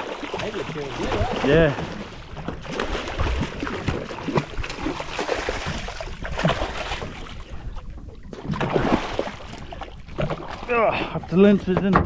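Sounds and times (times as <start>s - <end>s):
water washing: 0.0s - 7.3s
knocks and clunks on boat: 0.0s - 12.0s
wind: 0.0s - 12.0s.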